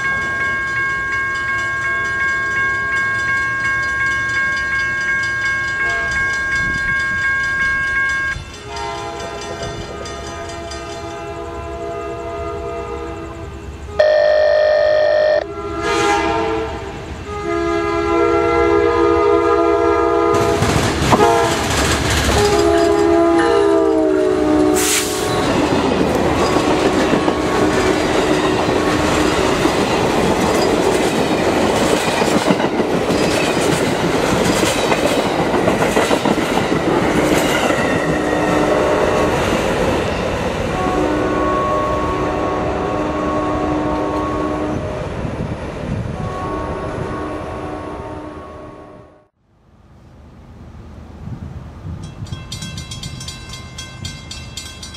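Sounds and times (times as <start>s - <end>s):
clickety-clack over rail joints: 8.3s - 11.3s, 20.4s - 23.6s, 24.6s - 40.8s
locomotive air horn: 9.9s - 21.7s, 22.3s - 25.6s, 38.4s - 39.4s, 40.7s - 44.9s, 46.2s - 49.3s
train wheels rushing by: 20.2s - 41.4s.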